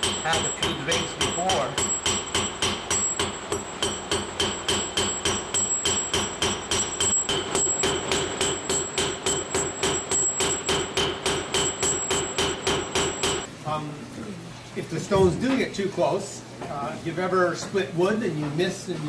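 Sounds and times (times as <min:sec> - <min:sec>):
steel pick striking stone: 0:00.0 - 0:13.5.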